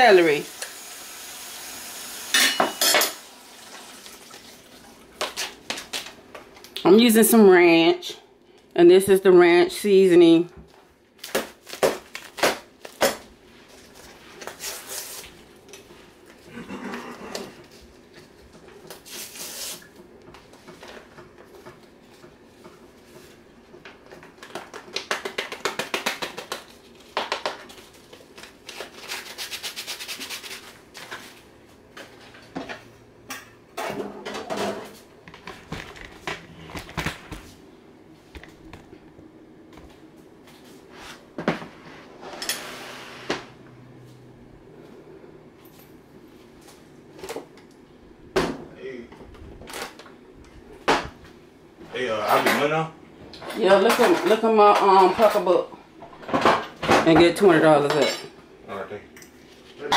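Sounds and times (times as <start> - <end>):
kitchen items clicking and knocking: 53.6 - 55.5.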